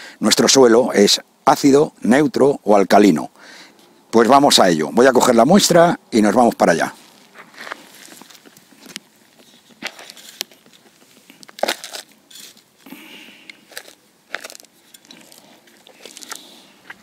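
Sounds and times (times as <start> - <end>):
crunching gritty soil: 4.2 - 17.0.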